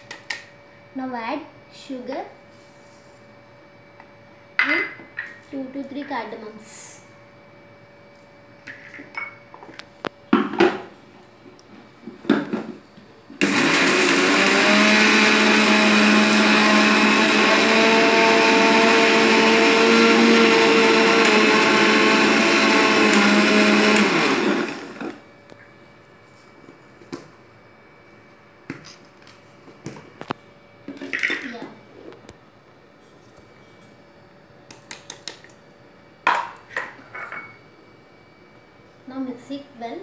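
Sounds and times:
mixer grinder grinding: 0:13.4 - 0:25.3.

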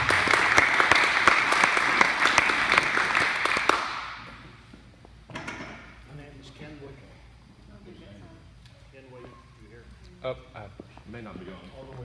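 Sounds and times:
crowd applause: 0:00.0 - 0:04.2.

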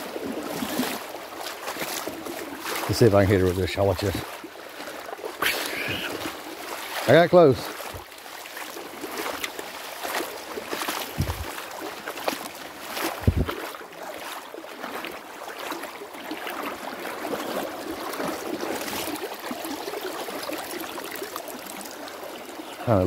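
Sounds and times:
creek water splashing over stones: 0:00.0 - 0:23.0
low thumps: 0:11.2 - 0:11.5, 0:13.2 - 0:13.5.

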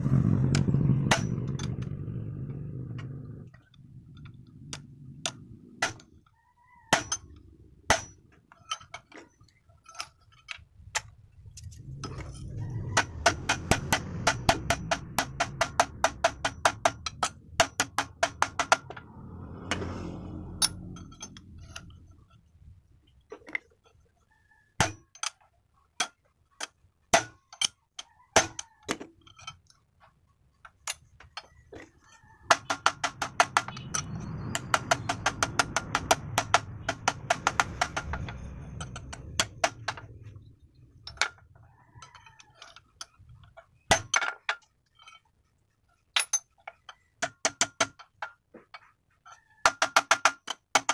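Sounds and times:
low rumble: 0:00.0 - 0:05.8, 0:11.2 - 0:22.4, 0:33.6 - 0:41.2.

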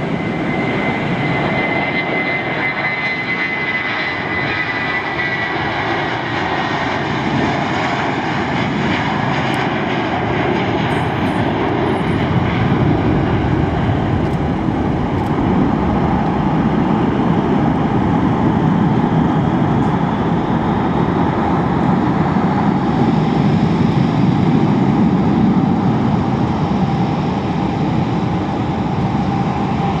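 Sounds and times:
jet engine roar: 0:00.0 - 0:30.0.

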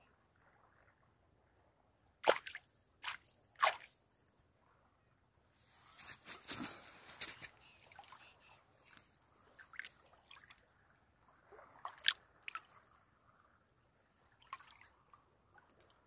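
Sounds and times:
water sloshing and dripping: 0:02.2 - 0:04.3, 0:08.8 - 0:16.0
small drips and splashes: 0:02.2 - 0:04.4, 0:06.0 - 0:16.0.

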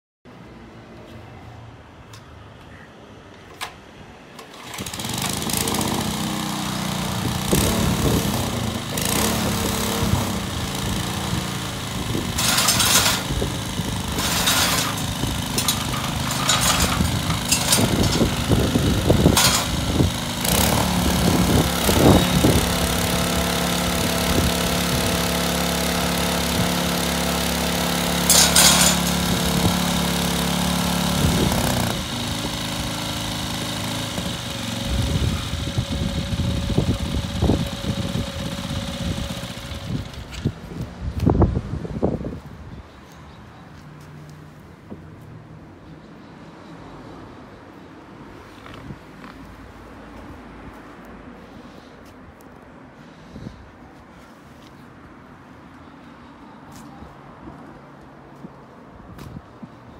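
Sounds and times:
small tiller engine running: 0:04.4 - 0:40.6.

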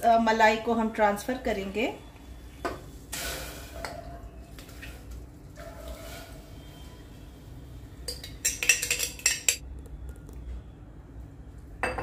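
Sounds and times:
metal spoon clinking on pot: 0:08.1 - 0:09.6.

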